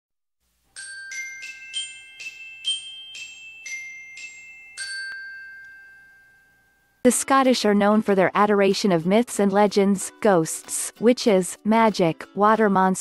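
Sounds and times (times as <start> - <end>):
chiming bell jingle: 0.7 - 7.0.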